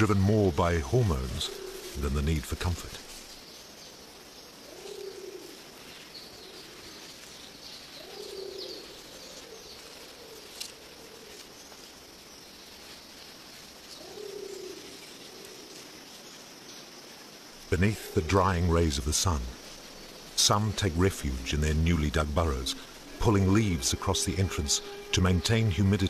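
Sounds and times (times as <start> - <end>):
dove cooing: 0.0 - 3.3, 4.6 - 11.4, 13.8 - 16.0, 17.7 - 26.0
forest ambience hiss: 0.0 - 26.0
small birds chirping: 0.0 - 26.0.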